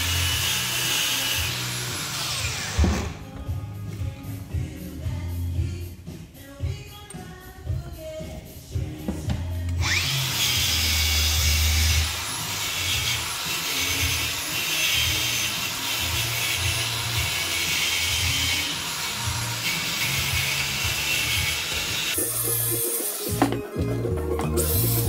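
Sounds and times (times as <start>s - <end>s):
grinder running against metal: 0.0s - 3.1s, 9.8s - 23.3s
angle grinder whining: 0.0s - 3.2s, 9.8s - 23.7s.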